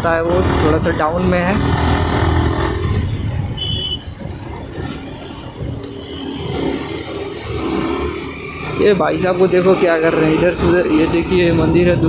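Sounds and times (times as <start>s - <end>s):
motorcycle engine running: 0.0s - 12.0s
short high-pitched beep: 3.5s - 4.1s.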